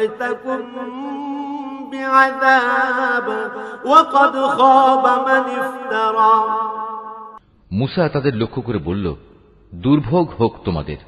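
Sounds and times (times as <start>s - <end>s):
man chanting: 0.0s - 6.6s.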